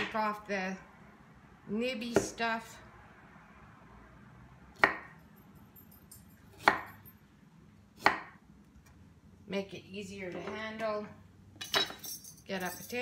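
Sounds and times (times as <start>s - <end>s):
knife chopping on wooden board: 4.8s - 5.1s, 6.6s - 7.0s, 8.0s - 8.4s.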